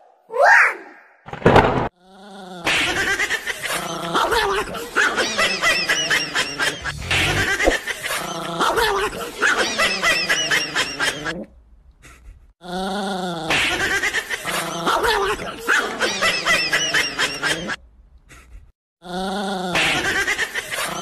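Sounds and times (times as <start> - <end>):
high-pitched laughter: 2.6 - 11.5, 13.5 - 17.8, 19.7 - 21.0
gliding sound effect: 6.8 - 7.8.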